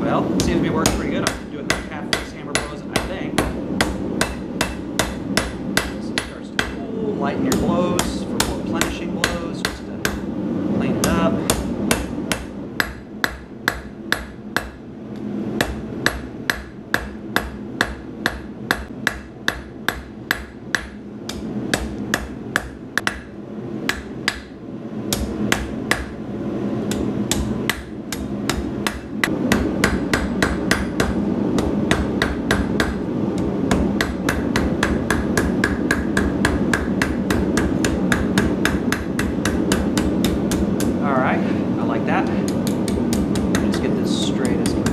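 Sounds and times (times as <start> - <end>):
hammer striking steel on anvil: 0.4 - 6.8, 11.0 - 14.8, 15.6 - 23.3, 26.9 - 33.0, 33.7 - 41.0, 42.5 - 44.9.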